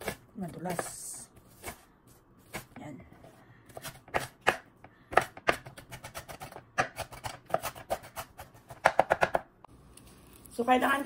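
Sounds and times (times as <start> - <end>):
knife chopping on wooden board: 3.7 - 9.5.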